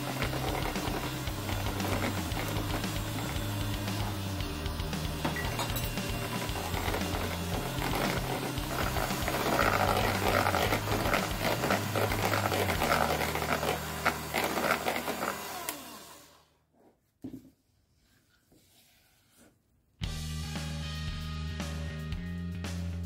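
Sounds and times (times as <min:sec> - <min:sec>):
electric hand mixer beating: 0:00.0 - 0:16.5.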